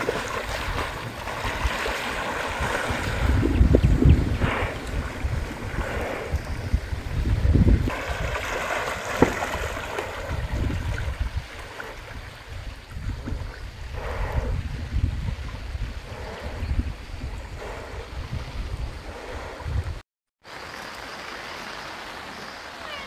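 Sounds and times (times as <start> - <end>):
floodwater rushing and splashing: 0.0 - 13.4, 20.4 - 23.0
wind buffeting microphone: 0.0 - 20.0.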